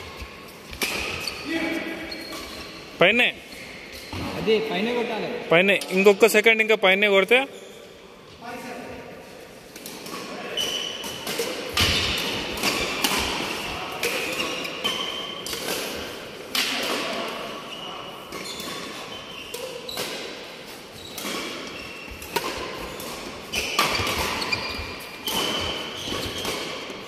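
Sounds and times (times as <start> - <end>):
shoes squeaking on court: 0.0 - 4.9, 10.1 - 16.1, 17.1 - 27.0
rackets striking shuttlecock: 21.1 - 27.0.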